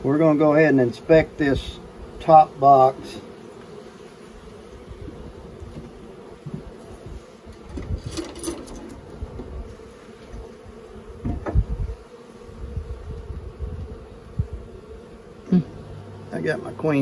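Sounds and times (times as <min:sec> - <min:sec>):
honeybees buzzing: 0:00.0 - 0:17.0
hive tool prying wooden frames: 0:11.2 - 0:11.8.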